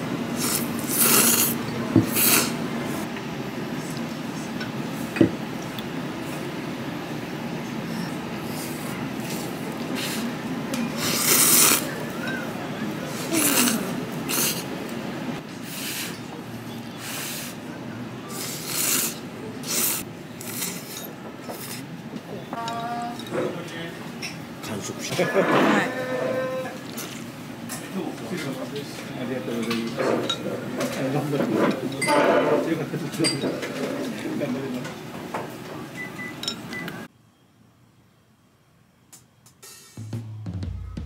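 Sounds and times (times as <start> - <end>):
noodles slurped: 0.4 - 2.6, 11.0 - 12.0, 13.2 - 14.7, 18.4 - 21.0.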